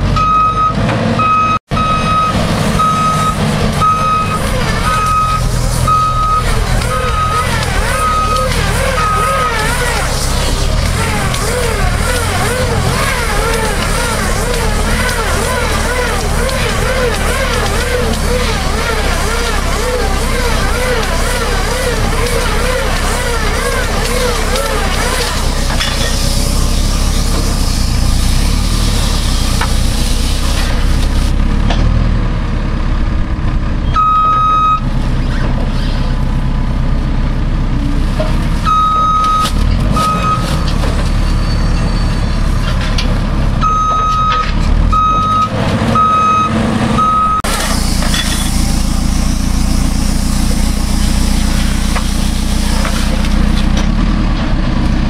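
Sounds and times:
diesel engine running: 0.0 - 55.0
electronic beeper: 0.2 - 10.5, 34.0 - 34.9, 38.6 - 42.4, 43.6 - 47.5.

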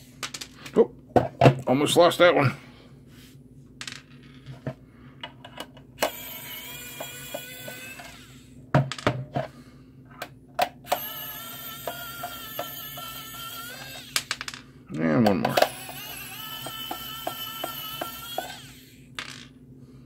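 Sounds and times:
electric screwdriver whining: 6.0 - 8.5, 10.8 - 14.3, 15.5 - 19.0.

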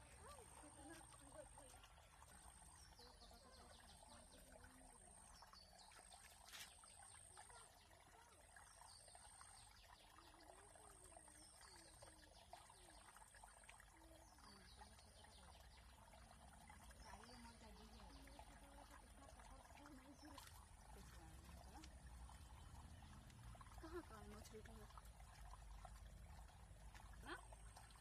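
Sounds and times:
faint trickling water: 0.0 - 28.0.

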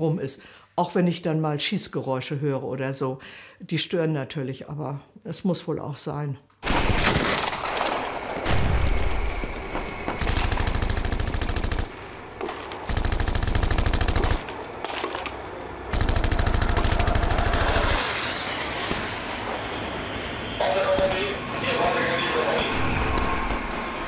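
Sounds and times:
automatic gunfire bursts: 10.2 - 14.4, 15.9 - 18.0.

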